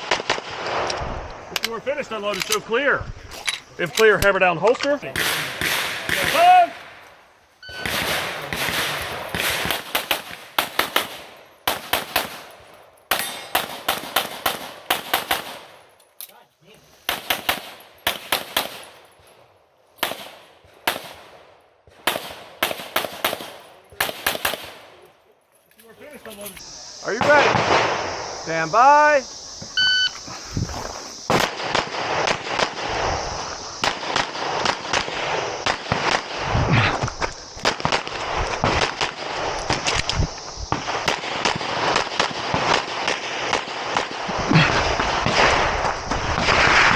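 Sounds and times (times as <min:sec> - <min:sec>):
rapid pistol shots: 0:00.0 - 0:00.9, 0:05.1 - 0:06.7, 0:07.8 - 0:12.5, 0:13.1 - 0:15.8, 0:17.1 - 0:18.9, 0:20.0 - 0:21.4, 0:22.0 - 0:25.0, 0:31.3 - 0:33.0, 0:33.8 - 0:36.5, 0:40.7 - 0:46.9.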